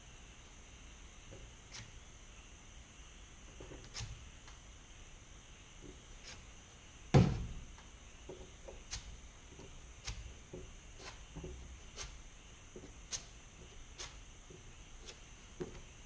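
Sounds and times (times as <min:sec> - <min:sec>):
filler spread on metal: 0:08.8 - 0:15.3.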